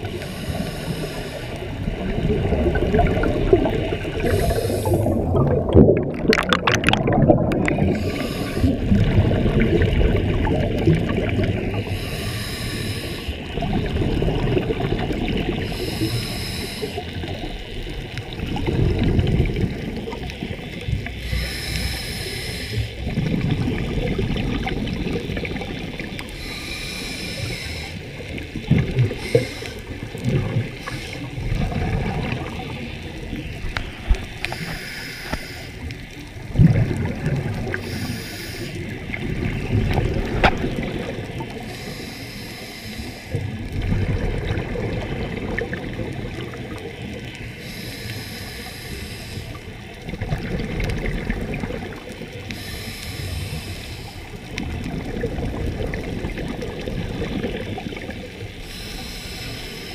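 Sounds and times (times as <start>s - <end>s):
gurgling exhaled bubbles: 0.0s - 59.9s
regulator inhalation hiss: 0.1s - 1.7s, 4.2s - 5.2s, 7.8s - 9.0s, 11.7s - 13.6s, 15.5s - 17.3s, 21.2s - 23.0s, 26.2s - 31.4s, 33.0s - 35.9s, 37.7s - 38.9s, 41.6s - 43.4s, 47.5s - 49.9s, 52.5s - 54.4s, 58.6s - 59.9s.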